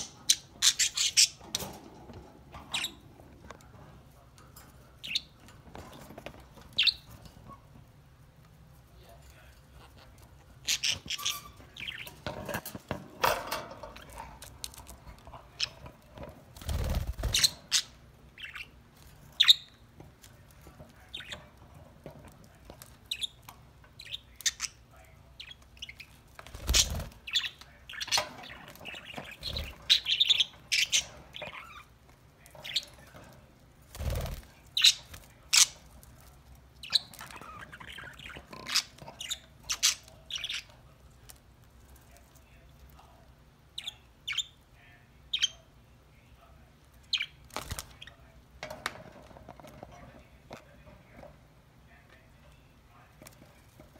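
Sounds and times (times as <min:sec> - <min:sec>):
budgerigars chirping: 0:00.0 - 0:01.4, 0:17.2 - 0:18.8.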